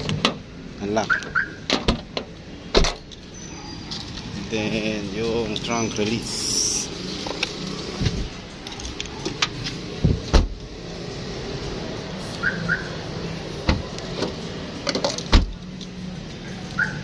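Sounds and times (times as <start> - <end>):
car alarm chirps: 1.0 - 1.7, 12.4 - 13.0, 16.8 - 17.0
trunk release clunk: 1.2 - 3.2, 13.6 - 15.6
car trunk lid slamming: 1.6 - 3.0, 10.0 - 10.6, 13.6 - 15.6.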